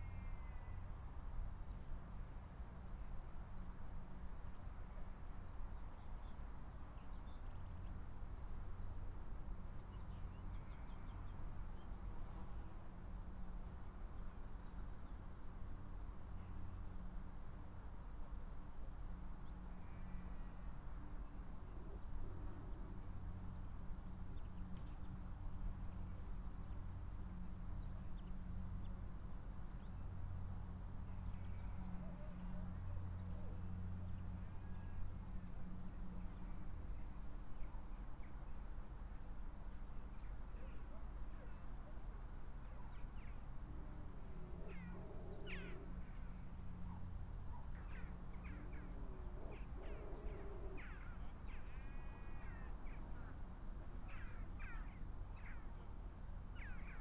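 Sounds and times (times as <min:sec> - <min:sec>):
outdoor background noise: 0:00.0 - 0:57.0
faint bird calls: 0:44.4 - 0:53.4, 0:54.0 - 0:57.0.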